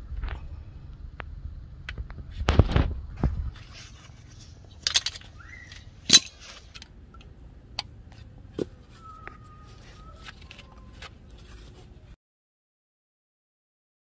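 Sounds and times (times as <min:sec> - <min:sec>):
metal brake parts knocking: 0:04.7 - 0:06.9.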